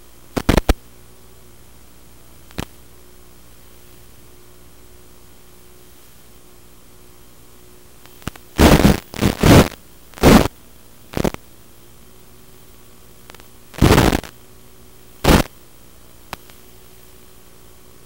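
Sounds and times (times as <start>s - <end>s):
loud bursts of static: 0.0s - 0.8s, 8.1s - 11.5s, 12.7s - 14.6s, 15.2s - 15.6s
steady radio hiss: 0.0s - 18.0s.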